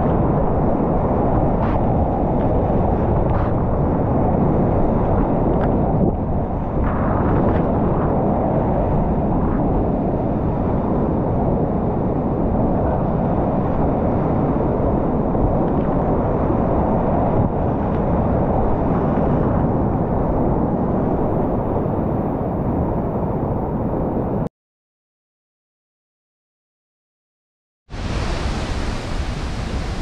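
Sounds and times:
whitewater rapids roaring: 28.0s - 30.0s.

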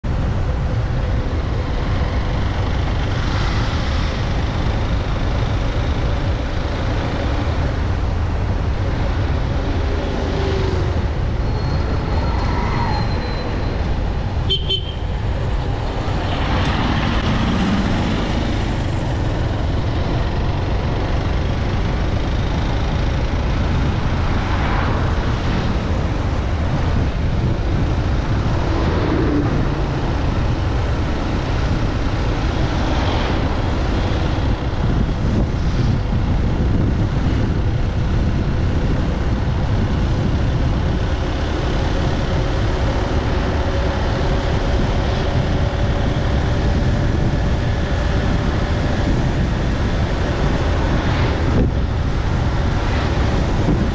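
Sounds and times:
vehicle road and wind rumble: 0.0s - 53.9s
vehicle horn toot: 14.5s - 15.0s.

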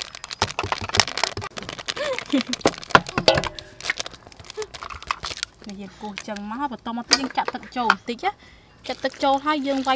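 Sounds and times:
plastic sachets crinkling: 0.0s - 6.8s, 8.8s - 9.9s.

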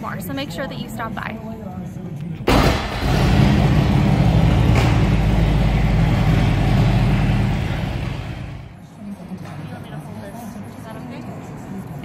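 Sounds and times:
motorcycle engine rumbling: 2.5s - 8.8s.

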